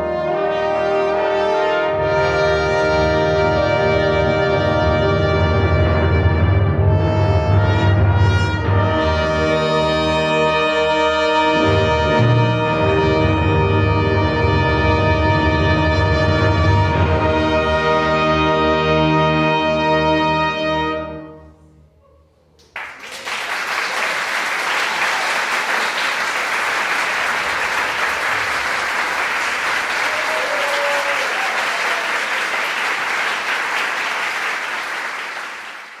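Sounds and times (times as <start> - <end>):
audience applauding: 22.6 - 36.0.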